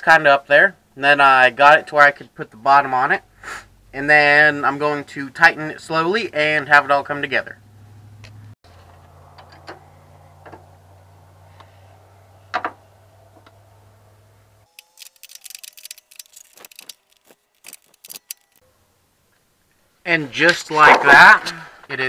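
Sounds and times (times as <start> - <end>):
ratchet wrench clicking: 14.8 - 18.6.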